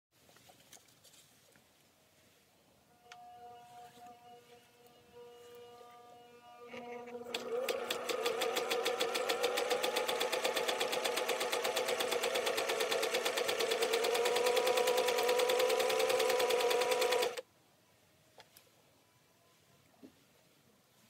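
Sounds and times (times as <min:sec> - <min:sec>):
sewing machine motor humming: 0:03.0 - 0:17.4
sewing machine needle clicks: 0:07.3 - 0:17.4.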